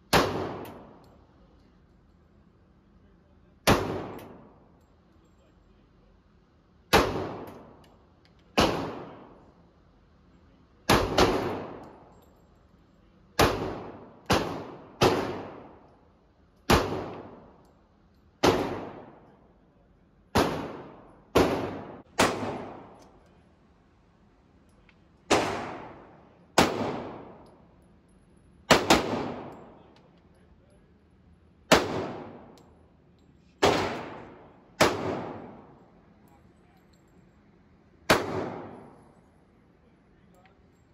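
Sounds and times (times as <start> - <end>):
pistol shots echoing indoors: 0.0 - 1.7, 3.5 - 5.1, 6.6 - 9.7, 10.8 - 12.2, 13.3 - 19.6, 20.2 - 23.2, 25.2 - 30.0, 31.6 - 33.0, 33.6 - 36.2, 37.8 - 39.2.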